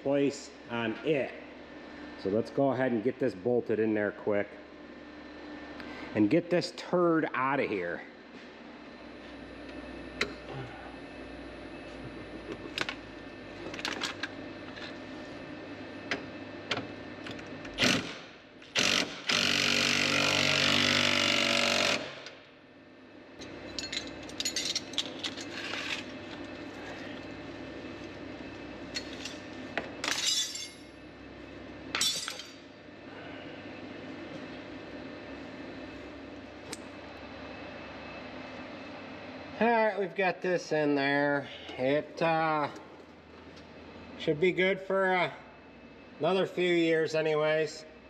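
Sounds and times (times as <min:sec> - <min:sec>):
power tool running: 0:17.6 - 0:22.4
tools clinking on metal: 0:23.7 - 0:25.5, 0:30.0 - 0:30.9, 0:32.0 - 0:32.6.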